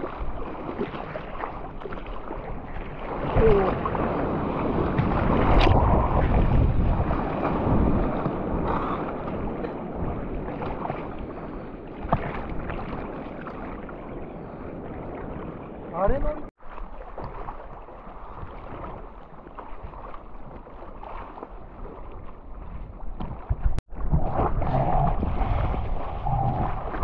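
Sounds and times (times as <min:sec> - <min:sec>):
ocean surf and rushing water: 0:00.0 - 0:27.0
wind buffeting microphone: 0:02.4 - 0:16.5, 0:21.3 - 0:27.0.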